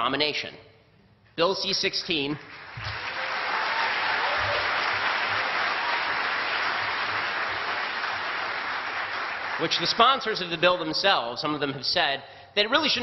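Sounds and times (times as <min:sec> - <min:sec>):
audience applauding: 0:02.4 - 0:10.5.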